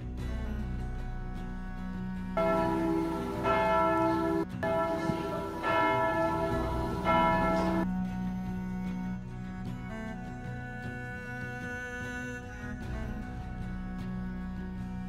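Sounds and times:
low background music: 0.0 - 15.0
church bells ringing: 2.4 - 8.0.

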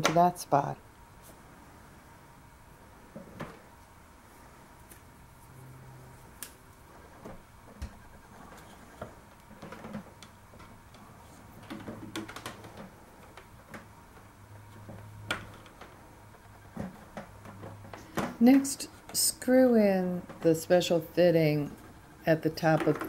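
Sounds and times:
plastic hoses clicking and tapping: 7.2 - 18.4.

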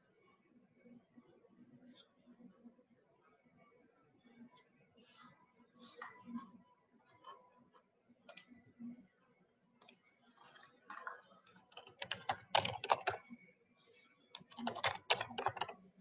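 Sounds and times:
computer keyboard typing: 11.0 - 13.3, 14.4 - 15.9.

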